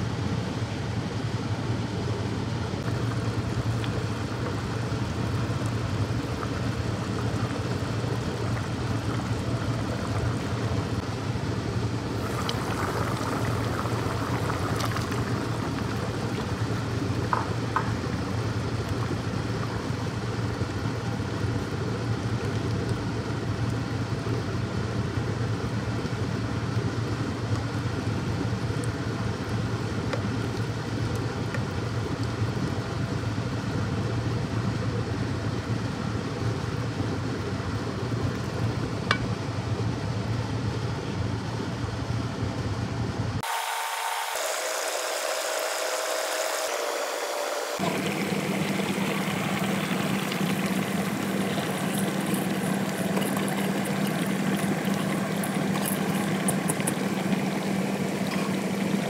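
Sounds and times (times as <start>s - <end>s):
steady low hum: 0.0s - 43.4s, 44.4s - 59.0s.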